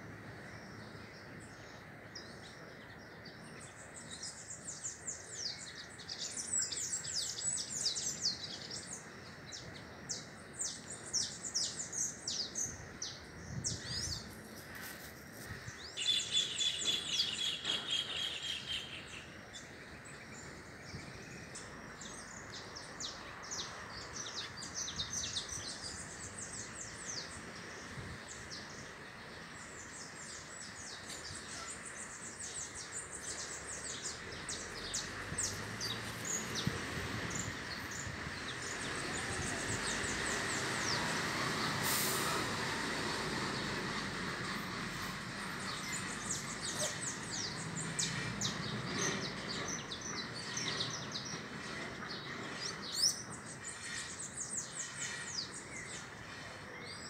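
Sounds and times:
steady outdoor hiss: 0.0s - 57.0s
small birds chirping: 0.2s - 57.0s
bird trill: 16.0s - 19.3s.

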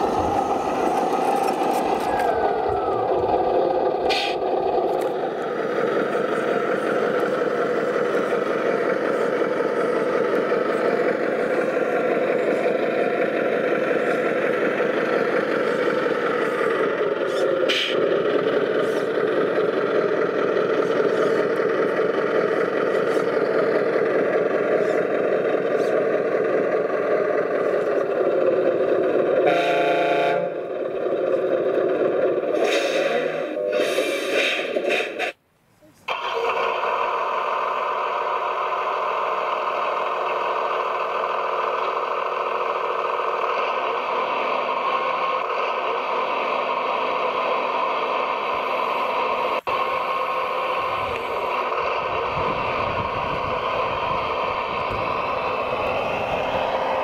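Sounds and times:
model trucks running: 0.0s - 57.0s
horn sounding: 29.4s - 30.6s.

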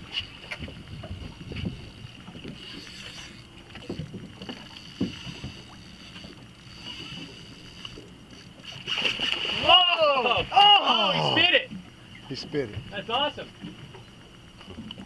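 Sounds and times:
wind rumble: 0.0s - 2.8s
water lapping against boat hull: 0.0s - 15.0s.

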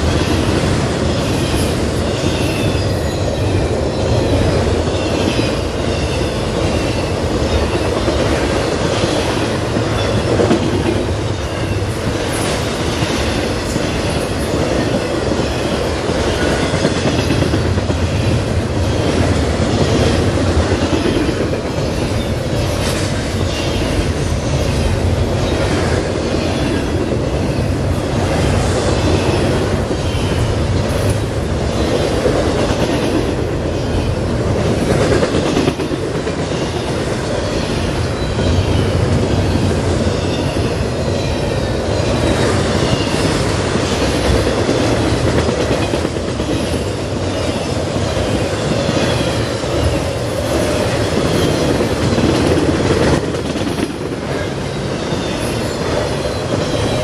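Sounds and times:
freight train rumbling: 0.0s - 57.0s
wheels clattering on rails: 0.0s - 57.0s.

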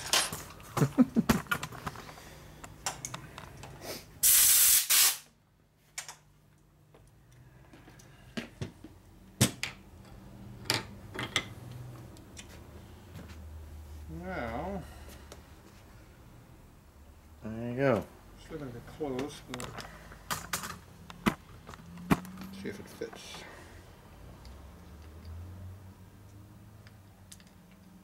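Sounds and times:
metal parts clinking: 0.0s - 0.6s
compressed air blast: 3.8s - 5.3s.

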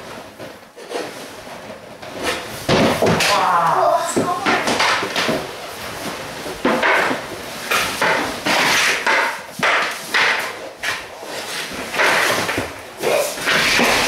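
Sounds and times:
hockey stick and pucks knocking: 2.1s - 3.5s, 4.1s - 12.8s, 13.4s - 14.0s
pucks scraping on ice panels: 8.5s - 14.0s.

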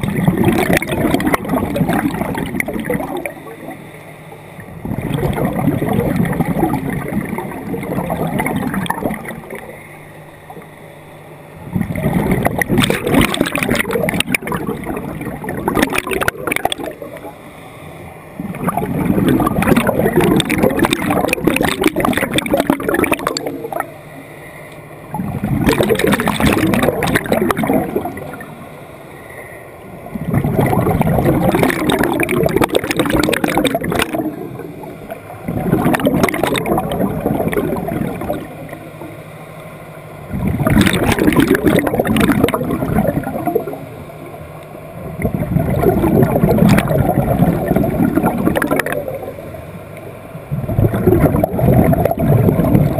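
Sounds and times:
regulator exhaust bubbles gurgling: 0.0s - 10.8s, 11.5s - 52.9s.

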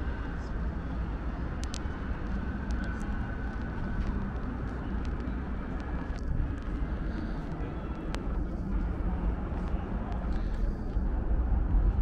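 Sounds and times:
low city rumble: 0.0s - 12.0s
faint light clicks: 1.6s - 1.9s.

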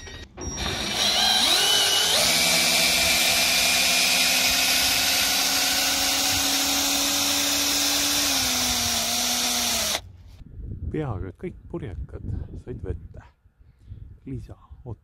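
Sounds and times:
cordless drill motor whine: 0.5s - 10.0s.

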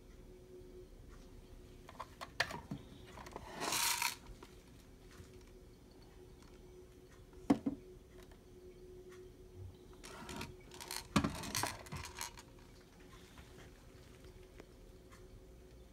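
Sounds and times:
faint steady hum: 0.0s - 15.9s
rifle clicks and rattles: 10.3s - 12.5s.

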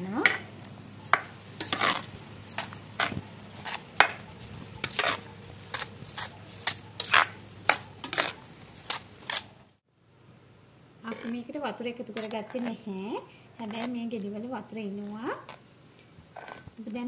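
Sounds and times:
metal spoon scraping a metal pot: 1.6s - 4.2s, 4.8s - 9.5s.

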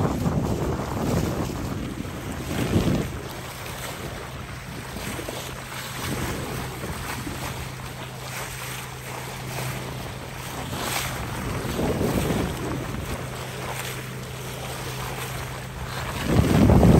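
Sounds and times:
water rushing and splashing: 0.0s - 16.9s
wind buffeting microphone: 0.0s - 16.9s.

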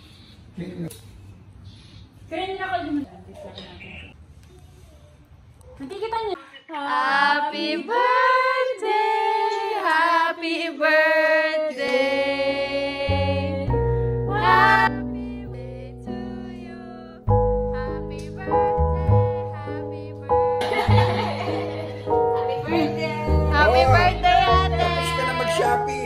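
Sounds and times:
woman singing: 14.3s - 20.6s, 22.6s - 26.0s.

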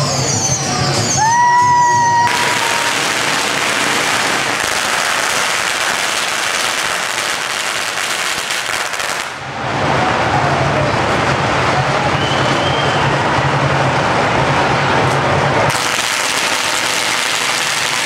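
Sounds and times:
firecrackers crackling: 1.5s - 9.6s, 15.7s - 18.0s.

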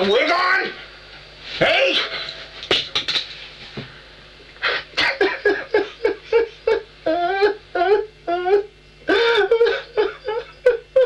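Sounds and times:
man sobbing and wailing: 5.0s - 11.0s.

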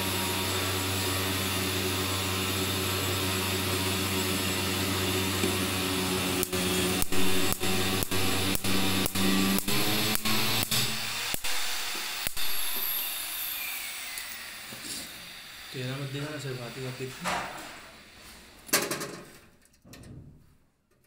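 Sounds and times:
machine hum: 0.0s - 14.4s.

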